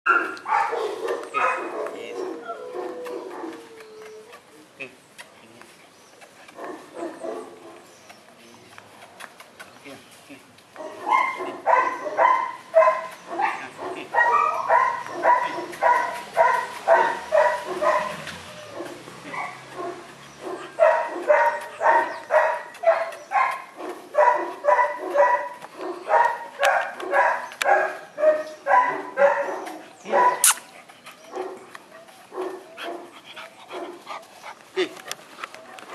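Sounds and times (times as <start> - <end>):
dog barking: 0.1 - 3.6, 6.6 - 7.8, 10.8 - 30.6, 31.3 - 33.1.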